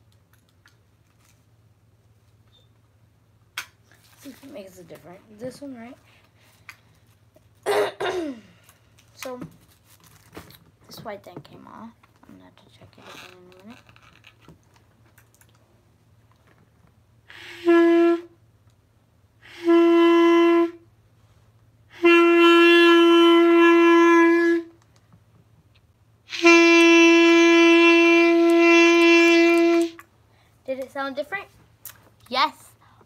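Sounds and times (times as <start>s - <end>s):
clarinet tones: 17.3s - 18.4s, 19.4s - 20.8s, 21.9s - 24.8s, 26.3s - 30.0s
breath: 30.3s - 30.6s, 32.8s - 33.0s.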